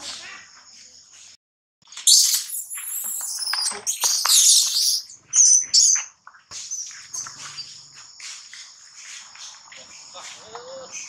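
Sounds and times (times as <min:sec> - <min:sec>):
baby monkey screaming: 0:02.1 - 0:06.0
high insect drone: 0:06.7 - 0:11.0.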